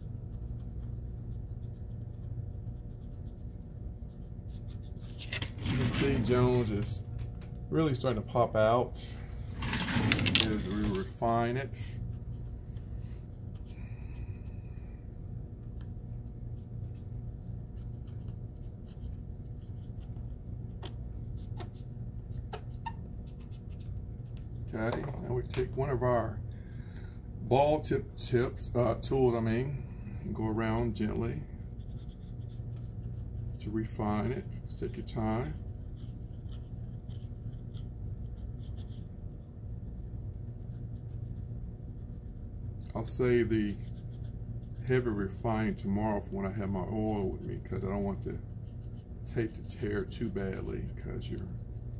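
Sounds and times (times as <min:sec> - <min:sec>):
steady low hum: 0:00.0 - 0:51.9
metal stylus scratching on tape: 0:04.9 - 0:06.8, 0:09.6 - 0:11.6.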